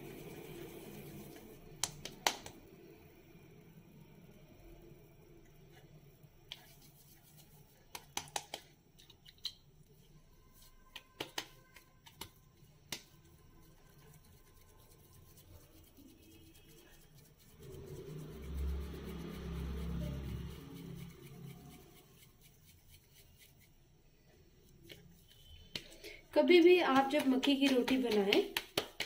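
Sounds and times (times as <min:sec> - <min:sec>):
hands patting dough: 0:01.8 - 0:02.6, 0:06.5 - 0:09.6, 0:10.4 - 0:19.5, 0:24.7 - 0:26.0, 0:26.6 - 0:29.0
low hum: 0:17.5 - 0:22.2.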